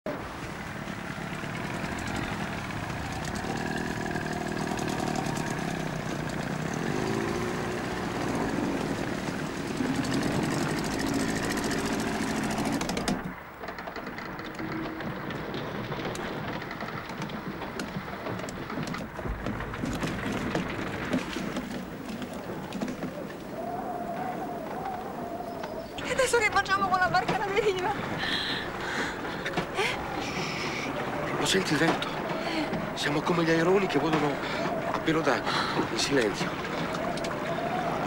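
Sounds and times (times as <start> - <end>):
small outboard motor revving: 0.4 - 13.3, 27.2 - 38.0.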